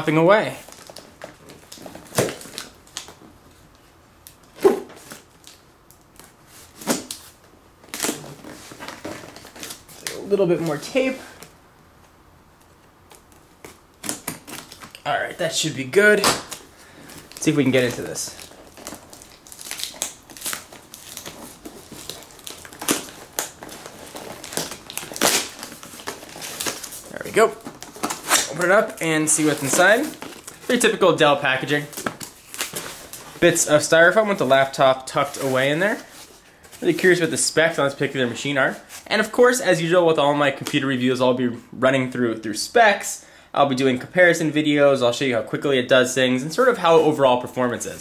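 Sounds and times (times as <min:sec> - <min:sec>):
packing tape crinkling and tearing: 0:00.5 - 0:11.5, 0:13.1 - 0:38.0.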